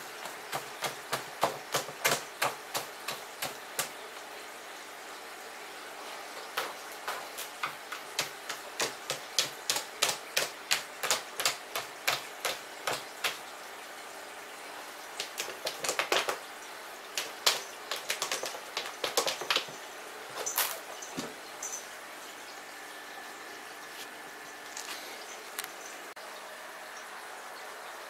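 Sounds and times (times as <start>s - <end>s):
cat scratching litter: 6.1s - 13.4s, 15.2s - 16.5s, 17.1s - 21.3s.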